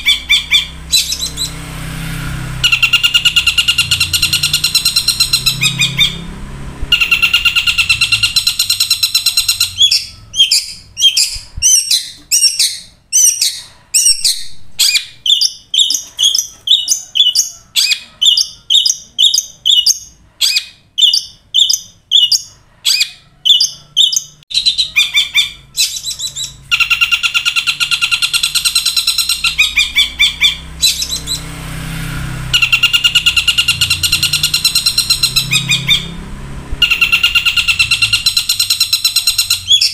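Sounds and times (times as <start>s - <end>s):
bird sharp chirps: 0.0s - 1.7s, 2.5s - 6.3s, 6.9s - 31.6s, 32.5s - 36.2s, 36.8s - 39.9s
bird harsh buzzy rattling: 0.0s - 10.3s.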